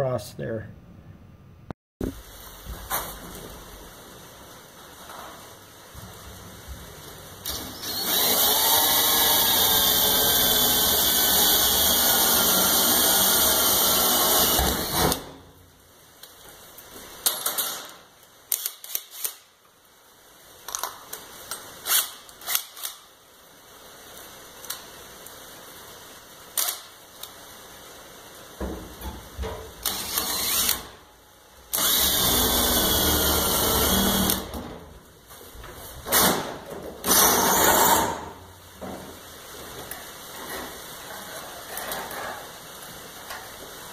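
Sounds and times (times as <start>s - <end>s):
cordless drill drilling metal: 7.4s - 15.3s, 29.8s - 31.0s, 31.7s - 34.5s, 37.0s - 38.2s.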